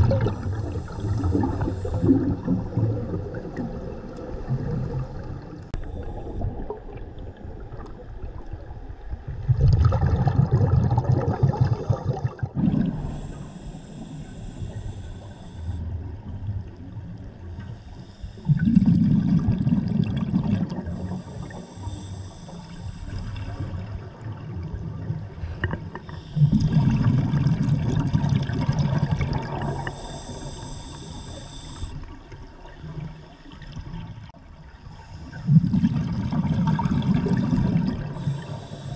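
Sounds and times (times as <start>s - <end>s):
exhaled bubbles rumbling: 0.0s - 17.7s, 18.3s - 21.6s, 22.6s - 30.9s, 35.2s - 38.9s
regulator inhale hiss: 0.2s - 2.5s, 5.7s - 6.7s, 12.9s - 15.9s, 17.6s - 18.8s, 20.8s - 23.9s, 25.4s - 26.8s, 29.6s - 32.2s, 38.0s - 38.9s.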